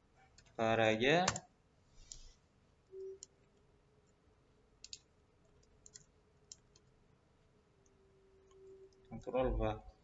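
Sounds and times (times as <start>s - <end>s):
faint steady hum: 0.0s - 10.0s
keyboard and mouse clicks: 1.2s - 1.5s, 3.0s - 4.2s, 4.8s - 7.0s.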